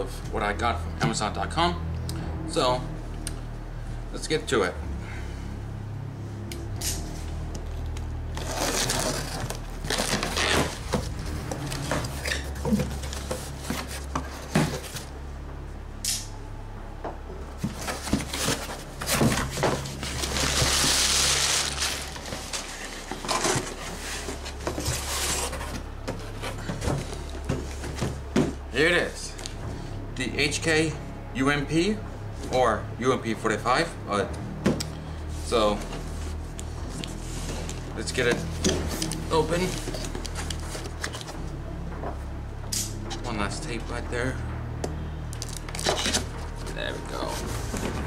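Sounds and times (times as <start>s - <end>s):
packing paper rustling: 8.4s - 15.1s, 17.8s - 27.2s.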